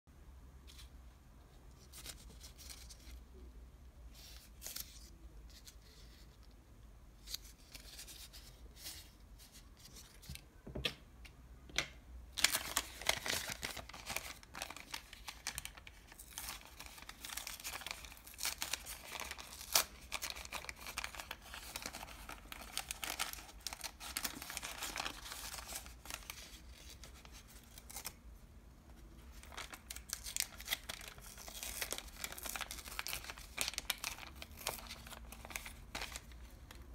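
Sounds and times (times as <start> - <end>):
paper bag crinkling: 12.4 - 28.1, 29.3 - 36.8.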